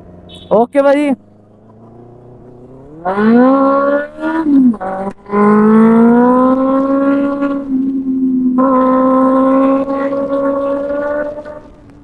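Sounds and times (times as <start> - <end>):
motorcycle engine accelerating hard: 1.2 - 12.0.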